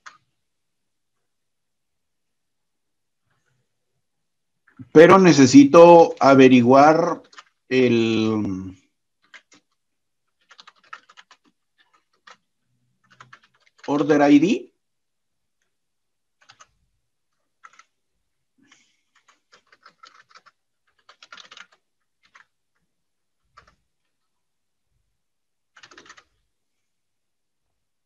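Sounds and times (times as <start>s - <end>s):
keyboard typing: 0.0s - 0.3s, 4.6s - 14.5s, 16.4s - 18.0s, 18.6s - 24.4s, 25.7s - 26.5s.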